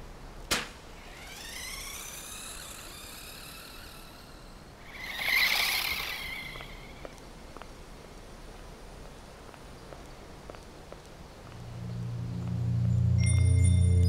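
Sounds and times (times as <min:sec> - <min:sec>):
toy car electric motor whining: 0:01.0 - 0:07.1.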